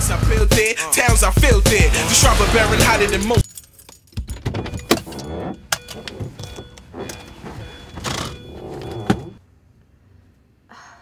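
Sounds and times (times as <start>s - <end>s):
upbeat pop music: 0.0s - 3.4s.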